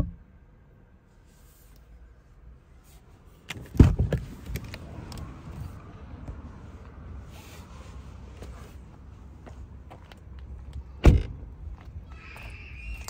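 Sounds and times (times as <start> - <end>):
car door thump: 3.6 - 4.2, 11.0 - 11.3.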